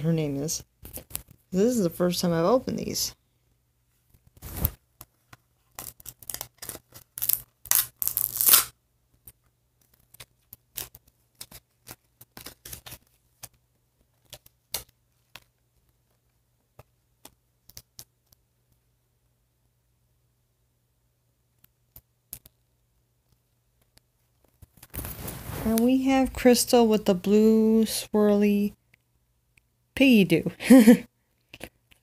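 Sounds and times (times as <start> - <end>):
packaging crinkling and rustling: 4.2 - 8.7, 9.8 - 16.2, 24.4 - 25.8.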